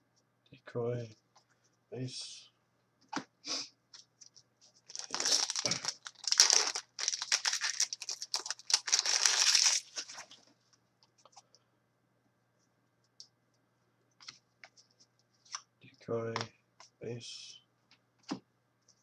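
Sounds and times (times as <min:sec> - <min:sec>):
foil wrapper tearing and crinkling: 0:04.9 - 0:10.4.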